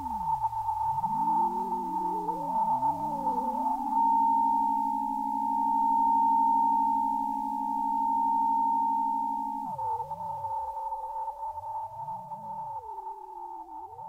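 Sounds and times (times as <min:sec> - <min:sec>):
sliding wavering synth pitches: 0:00.0 - 0:10.8
low pulsing electronic tone: 0:00.0 - 0:14.0.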